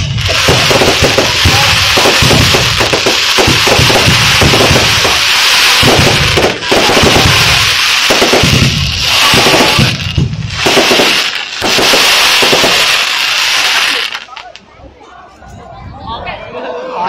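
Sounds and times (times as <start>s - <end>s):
fireworks crackling and banging: 0.0s - 14.7s.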